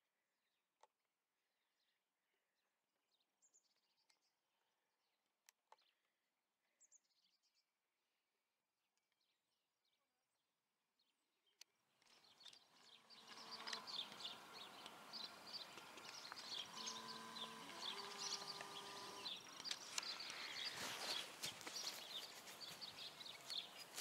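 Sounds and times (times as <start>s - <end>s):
small birds chirping: 11.0s - 24.0s
faint steady hum: 12.7s - 24.0s.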